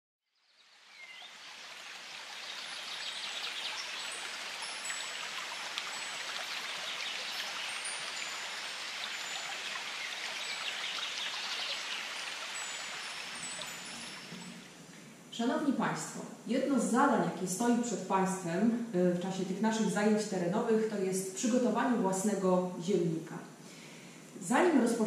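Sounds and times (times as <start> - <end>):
water rushing: 1.0 - 14.9.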